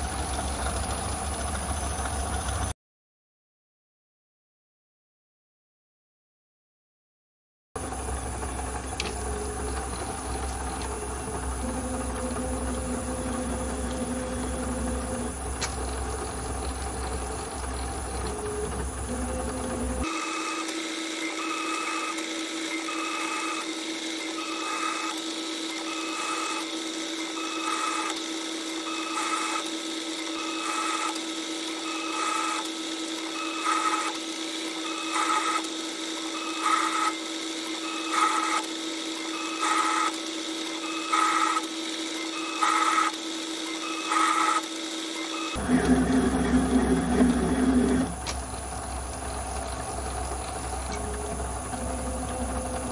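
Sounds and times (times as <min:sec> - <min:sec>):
low steady hum: 0:07.8 - 0:20.1, 0:45.6 - 0:52.9
lathe motor whine: 0:07.8 - 0:52.9.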